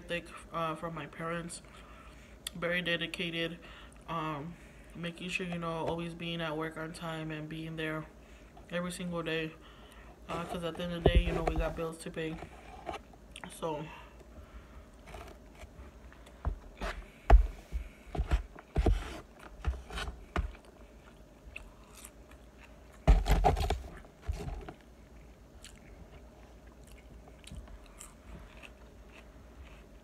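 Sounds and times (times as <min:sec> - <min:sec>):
chewing and crunching lettuce: 0:18.6 - 0:30.0.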